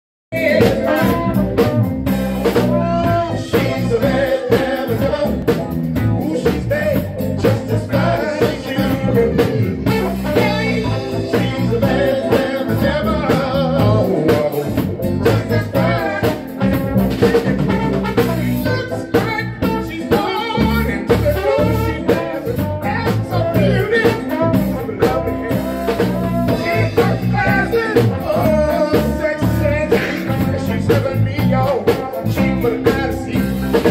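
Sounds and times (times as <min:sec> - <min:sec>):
drum kit: 0:00.3 - 0:33.9
electric bass: 0:00.3 - 0:33.9
keyboard: 0:00.3 - 0:33.9
person singing: 0:00.3 - 0:33.9
trombone: 0:00.4 - 0:33.9.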